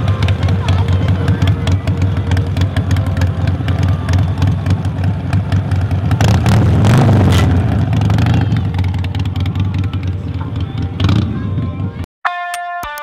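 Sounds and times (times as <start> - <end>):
motorcycle engine idling: 0.0 - 12.0.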